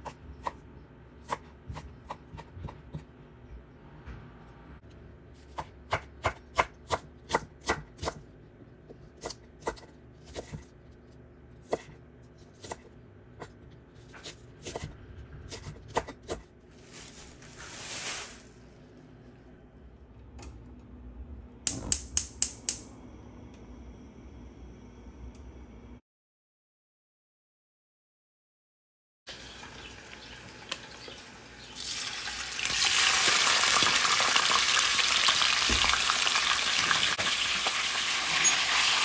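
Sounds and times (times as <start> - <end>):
knife chopping on wooden board: 5.4 - 8.2.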